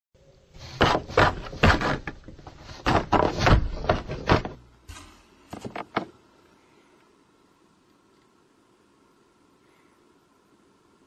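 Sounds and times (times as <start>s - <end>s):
cat paw scraping cardboard: 0.6s - 4.6s.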